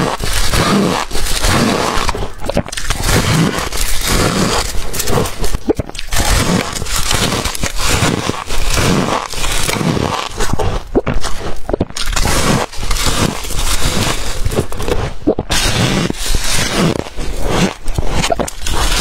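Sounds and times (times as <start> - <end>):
crunching frost with teeth: 0.0 - 19.0.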